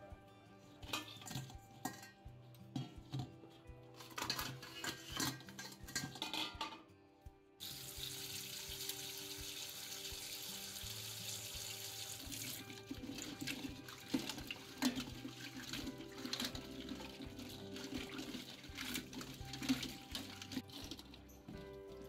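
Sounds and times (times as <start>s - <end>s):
crab pieces clattering in steel bowl: 4.0s - 6.8s
tap water running into steel bowl: 7.6s - 21.8s.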